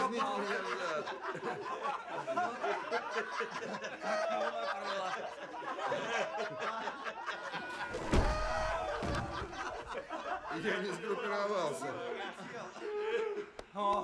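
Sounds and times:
people laughing: 0:00.0 - 0:14.0.

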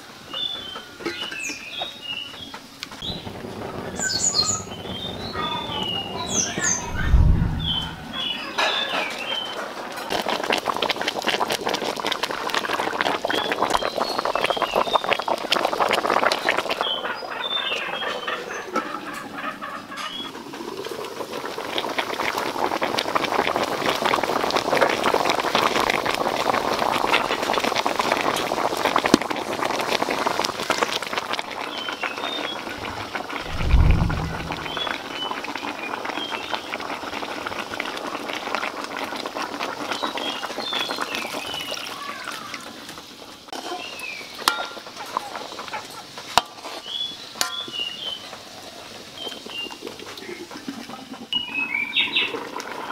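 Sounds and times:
broth boiling and bubbling: 0:02.4 - 0:08.4, 0:09.3 - 0:18.0, 0:20.1 - 0:52.9
birds chirping: 0:03.0 - 0:08.5, 0:32.8 - 0:35.0
low thump: 0:03.1 - 0:08.4, 0:32.8 - 0:35.0.

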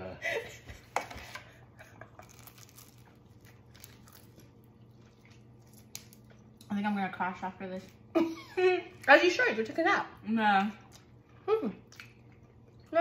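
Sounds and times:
chewing crunchy croissant: 0:01.8 - 0:06.7, 0:10.8 - 0:13.0.

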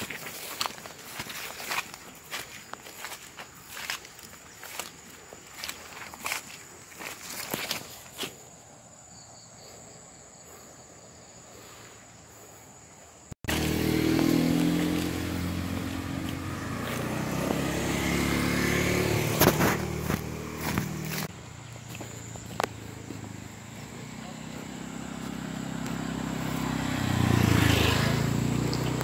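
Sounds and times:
motorcycle engine running: 0:13.5 - 0:29.0.

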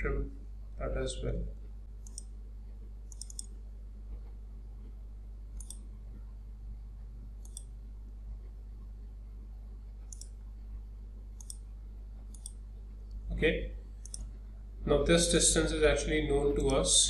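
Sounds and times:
steady low hum: 0:00.0 - 0:17.0
computer mouse clicking: 0:02.0 - 0:02.4, 0:03.1 - 0:03.6, 0:05.5 - 0:05.9, 0:07.4 - 0:07.8, 0:10.0 - 0:10.4, 0:11.4 - 0:13.2, 0:14.0 - 0:14.4.

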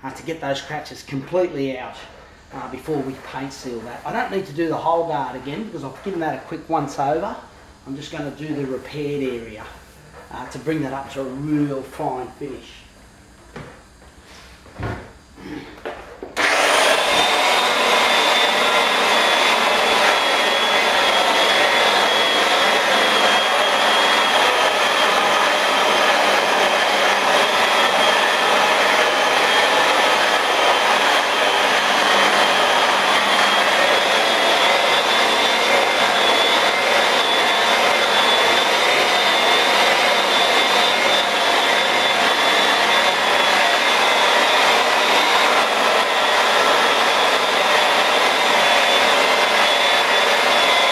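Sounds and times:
electric polisher motor whining: 0:16.3 - 0:50.9.

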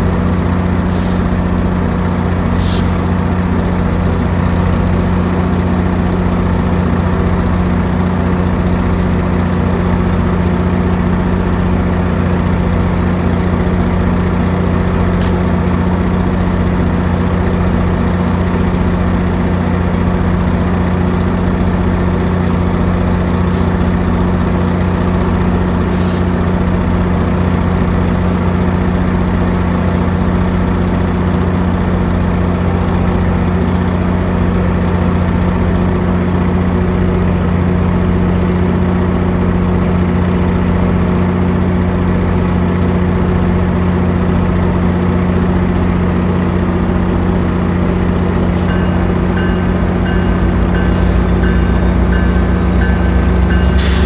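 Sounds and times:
diesel locomotive idling: 0:00.0 - 0:54.0.

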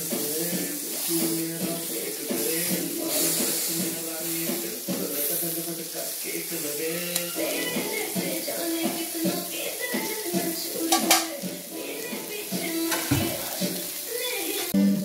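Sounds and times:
food sizzling in a frying pan: 0:00.0 - 0:15.0
background music with held melody: 0:06.3 - 0:15.0.

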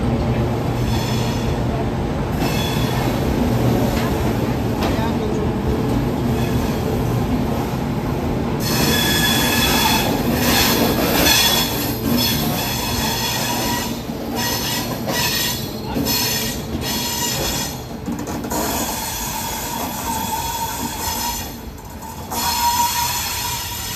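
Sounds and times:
train coaches rumbling past: 0:00.0 - 0:23.9
ringing wheel squeal: 0:08.6 - 0:17.8.

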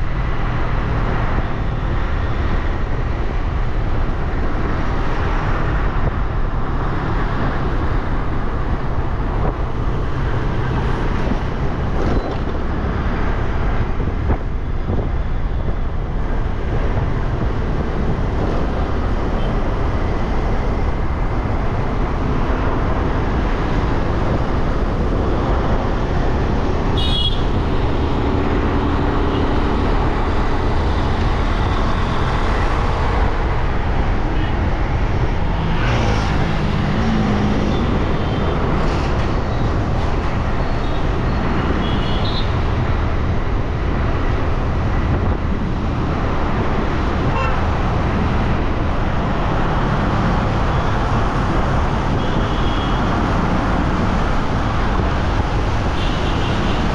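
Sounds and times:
surrounding traffic: 0:00.0 - 0:56.9
wind on microphone: 0:01.0 - 0:41.8, 0:42.5 - 0:56.0.

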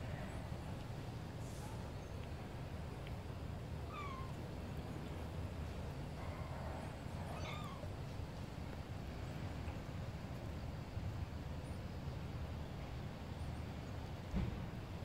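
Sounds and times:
kitten meowing: 0:03.9 - 0:04.4, 0:07.3 - 0:07.9.

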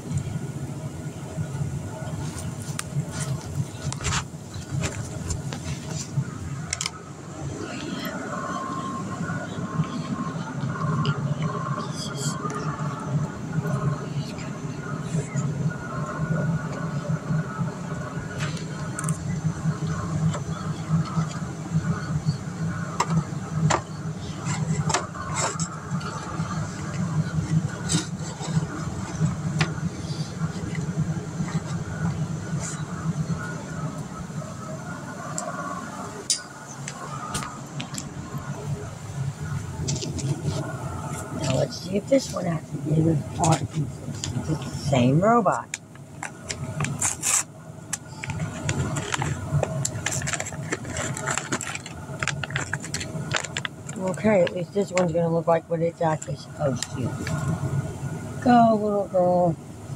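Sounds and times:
steady low hum: 0:00.0 - 0:59.9
steady low rumble: 0:00.0 - 0:59.9
plastic parts clicking and rattling: 0:48.0 - 0:54.6.

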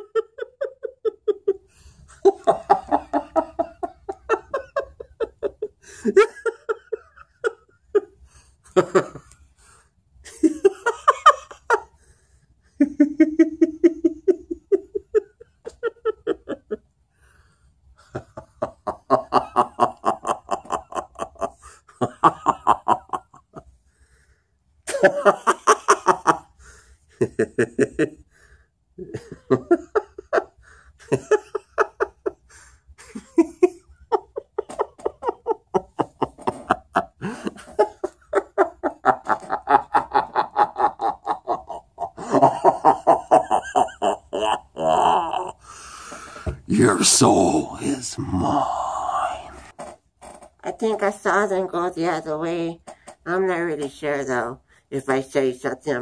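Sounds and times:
man laughing: 0:00.0 - 0:08.1, 0:12.9 - 0:16.8, 0:18.1 - 0:23.4, 0:24.9 - 0:26.5, 0:27.2 - 0:28.2, 0:29.0 - 0:45.8, 0:46.8 - 0:49.5.

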